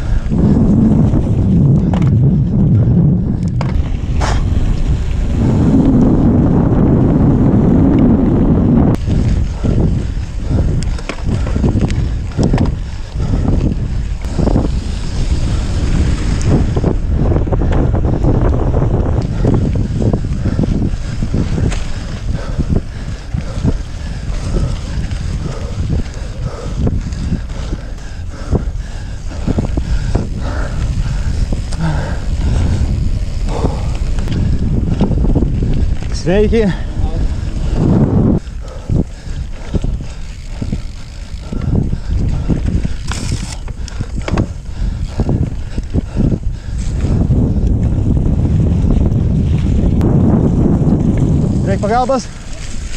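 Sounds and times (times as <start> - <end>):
bicycle tyres crunching gravel: 0.0 - 52.9
bike knocking and rattling: 0.0 - 52.9
wind buffeting microphone: 0.0 - 52.9
bicycle knocks and rattles: 0.9 - 2.5, 3.2 - 5.8, 8.9 - 22.2, 39.5 - 46.0.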